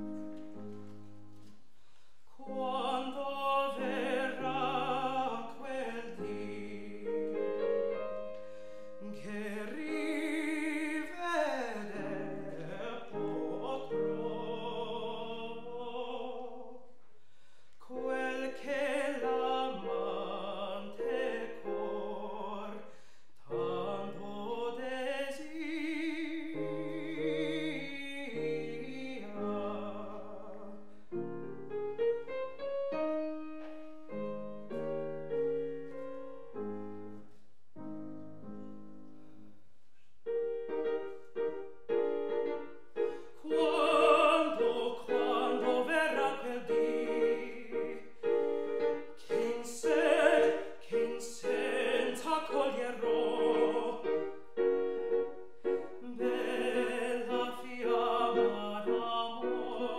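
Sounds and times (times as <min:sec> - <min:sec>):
grand piano: 0:00.0 - 0:59.9
man singing operatically: 0:02.4 - 0:07.4, 0:09.0 - 0:16.8, 0:17.9 - 0:22.9, 0:23.5 - 0:30.8, 0:43.3 - 0:54.4, 0:56.1 - 0:59.9.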